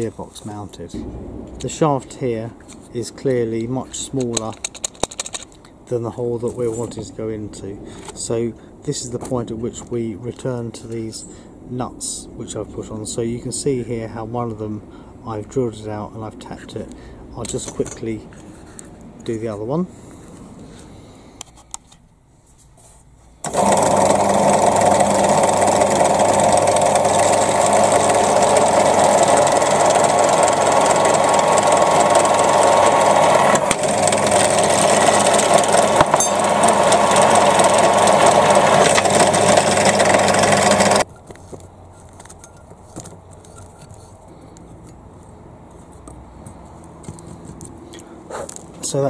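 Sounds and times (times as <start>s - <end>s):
pillar drill running: 23.4s - 41.1s.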